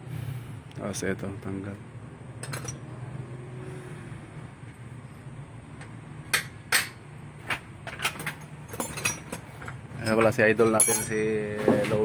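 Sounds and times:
tools clinking on metal: 2.4s - 2.9s, 7.8s - 12.0s.

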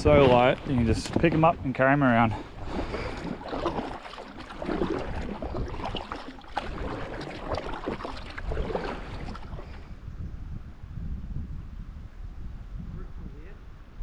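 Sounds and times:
paddle splashing in water: 0.0s - 9.9s
water dripping: 3.1s - 9.6s.

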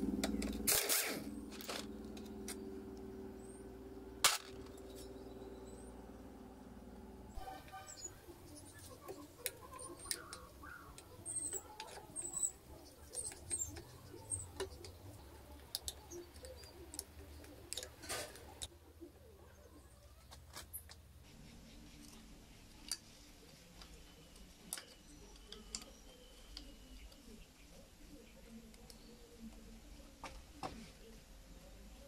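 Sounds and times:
short high squeaks: 7.4s - 8.2s.

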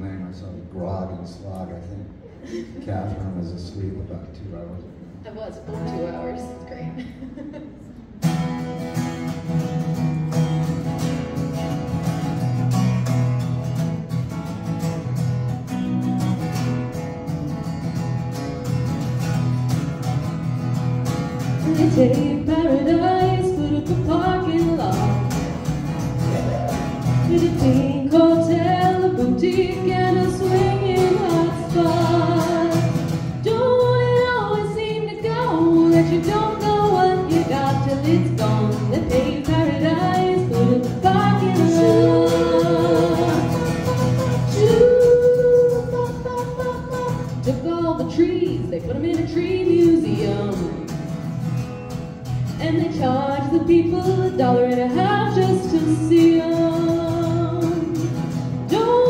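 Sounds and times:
acoustic guitar: 0.0s - 59.0s
woman singing: 21.6s - 25.4s, 27.2s - 51.0s, 52.6s - 59.0s.

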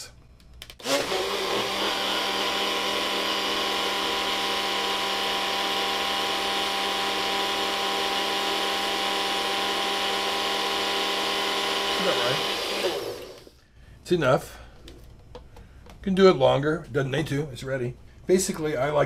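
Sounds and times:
blender running: 0.8s - 13.6s.

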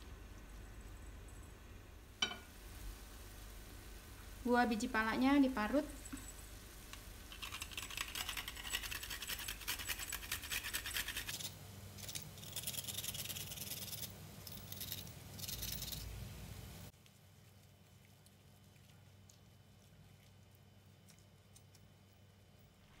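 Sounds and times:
nutmeg rasping on a grater: 7.3s - 11.5s.

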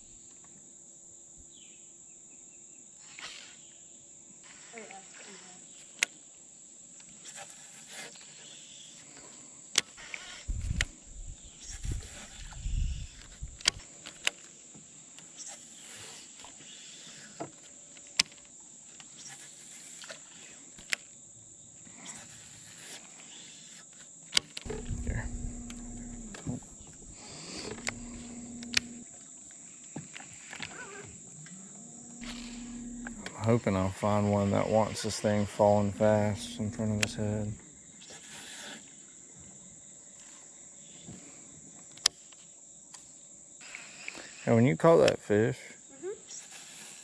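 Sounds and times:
insects droning: 0.0s - 47.0s
electric trolling motor whining: 24.7s - 29.1s, 30.8s - 37.6s.

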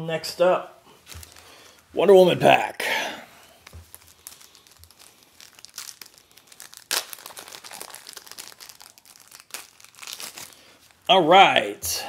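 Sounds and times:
wrapper crinkling and tearing: 1.0s - 1.9s, 3.4s - 11.1s.

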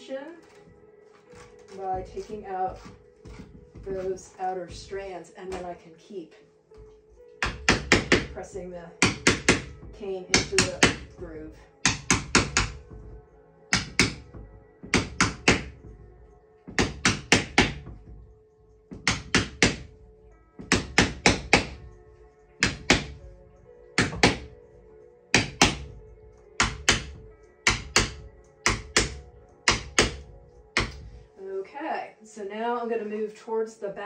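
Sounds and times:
mallet tapping a wedge: 0.4s - 5.7s, 7.4s - 8.4s, 9.0s - 11.2s, 11.8s - 13.1s, 13.7s - 15.9s, 16.7s - 18.1s, 18.9s - 20.0s, 20.6s - 22.0s, 22.6s - 23.3s, 24.0s - 24.6s, 25.3s - 26.0s, 26.6s - 31.2s.

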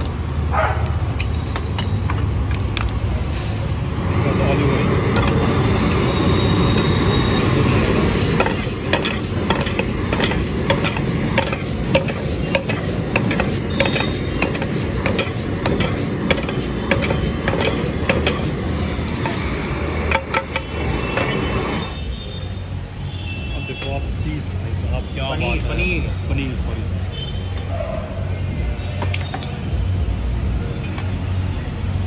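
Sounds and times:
gas burner rushing: 0.0s - 26.0s
frying sizzle: 2.9s - 23.2s.

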